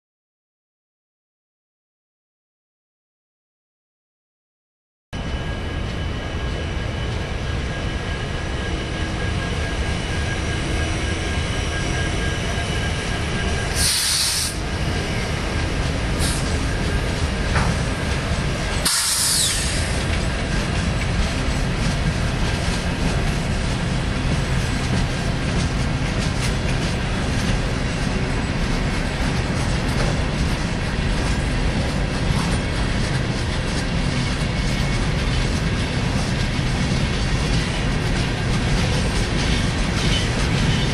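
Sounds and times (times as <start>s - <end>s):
train wheels rumbling on rail: 5.2s - 40.9s
high-pitched hisses: 18.9s - 19.7s.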